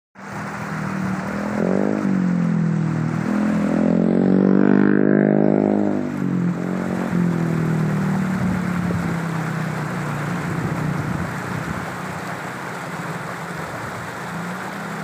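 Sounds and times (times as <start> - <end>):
vehicle engine droning: 0.2 - 15.0.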